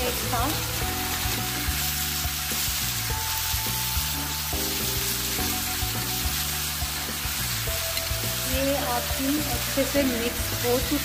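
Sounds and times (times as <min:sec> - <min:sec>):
vegetables sizzling in hot oil: 0:00.0 - 0:11.0.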